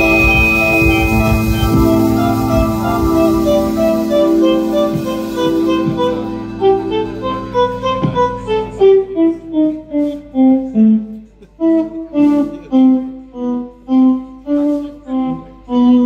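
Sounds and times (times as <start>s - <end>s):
electric guitar solo: 0.0s - 9.0s
band playing quietly: 0.0s - 16.0s.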